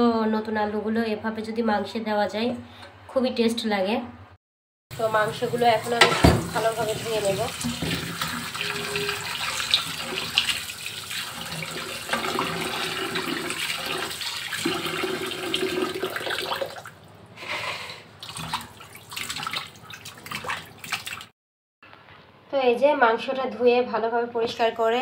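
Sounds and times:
water splashing and sloshing: 0:05.0 - 0:17.2, 0:18.0 - 0:21.3.

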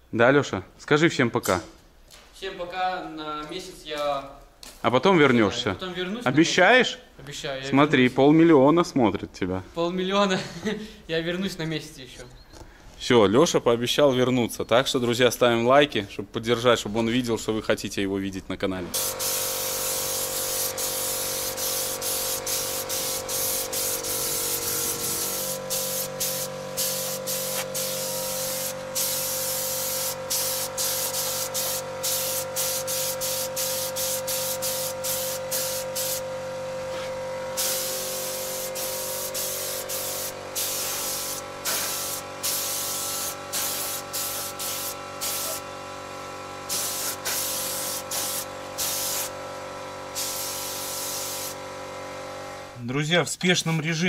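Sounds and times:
compressed air tool hissing: 0:19.0 - 0:36.2, 0:37.6 - 0:45.6, 0:46.7 - 0:49.4, 0:50.1 - 0:51.6.

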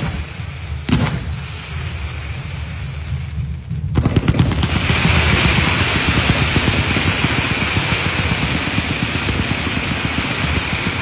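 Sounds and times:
firework bang: 0:00.0 - 0:11.0
fireworks crackling: 0:00.0 - 0:11.0
hiss of shells launching: 0:04.0 - 0:11.0.

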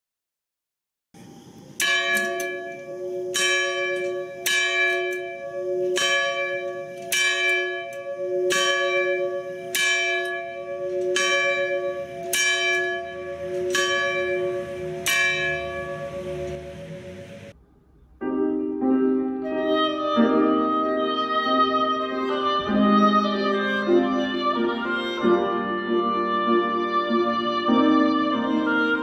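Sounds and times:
church bell tolling: 0:01.8 - 0:17.6.

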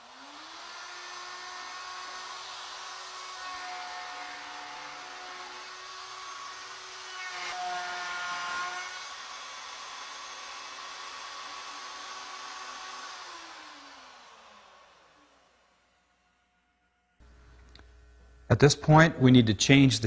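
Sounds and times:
router motor spinning down: 0:00.0 - 0:16.0
router cutting wood: 0:00.0 - 0:16.2.

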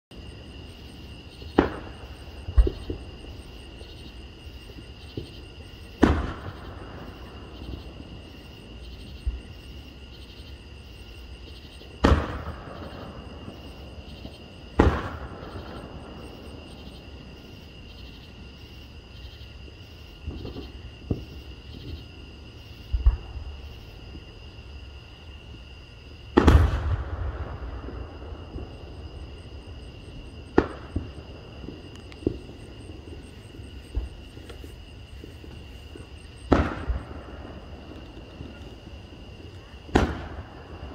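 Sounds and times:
fireworks booming: 0:00.1 - 0:09.7, 0:11.5 - 0:18.0, 0:20.2 - 0:22.0, 0:22.8 - 0:24.3, 0:26.2 - 0:40.9
faint fireworks pops: 0:01.4 - 0:07.7, 0:11.9 - 0:16.8, 0:20.2 - 0:22.0, 0:22.9 - 0:24.2, 0:26.3 - 0:28.9, 0:30.3 - 0:40.9.

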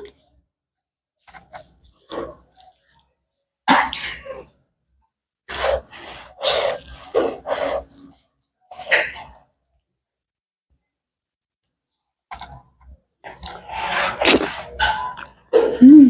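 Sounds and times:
person eating noisily: 0:13.3 - 0:16.0.

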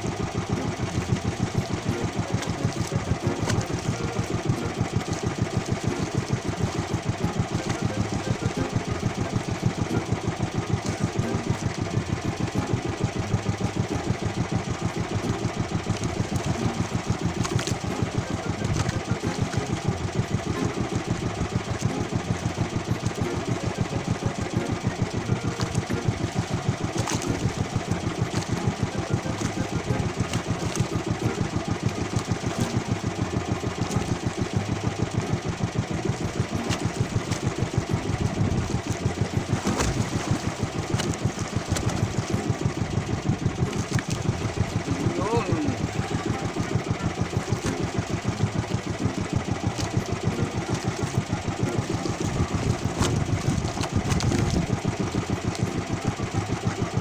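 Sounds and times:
boat engine running steadily: 0:00.0 - 0:57.0.

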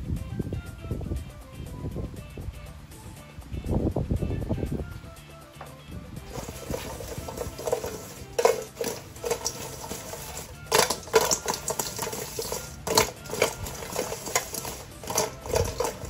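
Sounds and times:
chicken wings sliding in metal bowl: 0:06.3 - 0:16.0.

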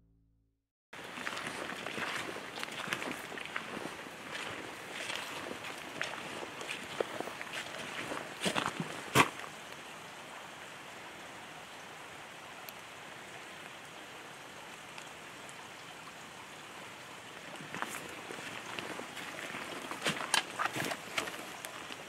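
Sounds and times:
footsteps on wet leaf litter: 0:01.0 - 0:09.5, 0:17.5 - 0:22.0
rain falling on forest: 0:01.0 - 0:22.0.

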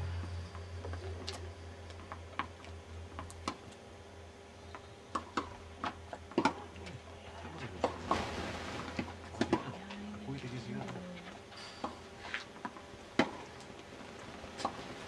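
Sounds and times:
low hum: 0:00.0 - 0:12.2
tennis balls struck and bouncing: 0:05.1 - 0:06.6.

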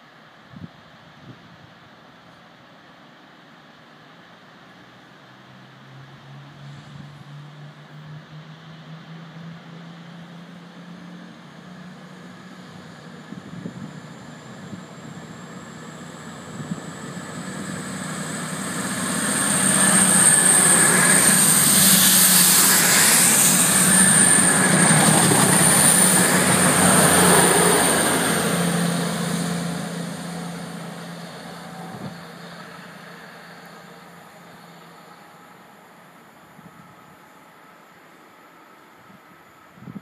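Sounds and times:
train passing at speed: 0:00.0 - 0:40.0
wheels on rails: 0:16.0 - 0:35.3.

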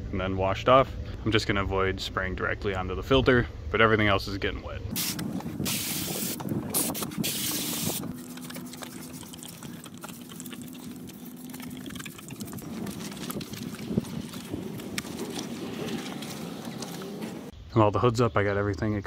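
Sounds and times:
spray bottle squirts: 0:04.9 - 0:12.6
garden hose spraying water: 0:04.9 - 0:12.9.

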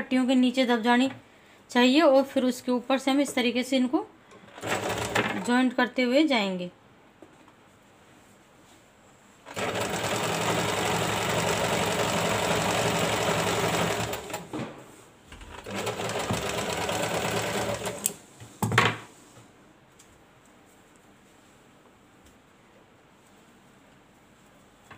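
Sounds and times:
electric sewing machine stitching: 0:04.5 - 0:05.5, 0:09.5 - 0:14.5, 0:15.5 - 0:18.2.

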